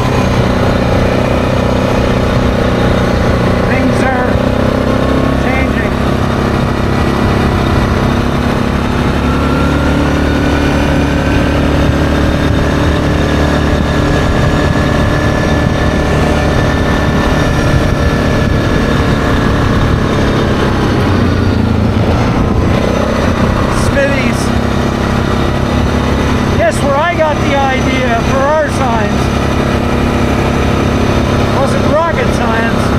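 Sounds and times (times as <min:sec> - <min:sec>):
atv engine on gravel road: 0:00.0 - 0:32.9.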